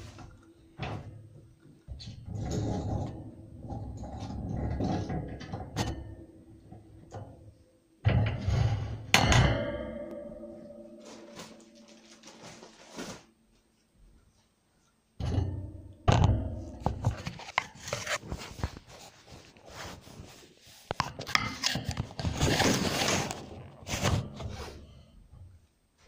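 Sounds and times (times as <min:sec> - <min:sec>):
rustling scrape: 0:10.9 - 0:13.4, 0:17.0 - 0:25.0.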